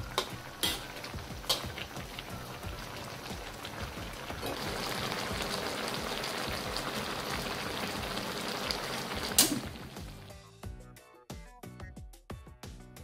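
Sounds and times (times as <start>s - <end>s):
broth bubbling at a boil: 2.0s - 10.2s.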